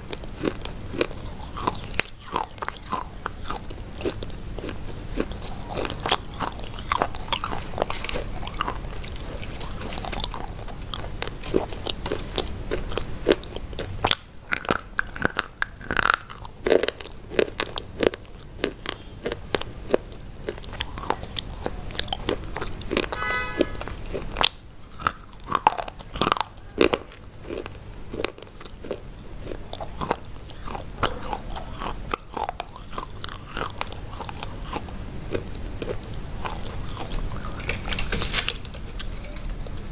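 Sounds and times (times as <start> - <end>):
crunching and chewing hard sticks: 0.0 - 39.9.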